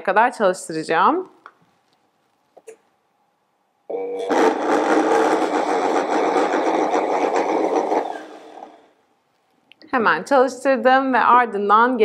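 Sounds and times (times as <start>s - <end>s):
blender running: 4.2s - 9.0s.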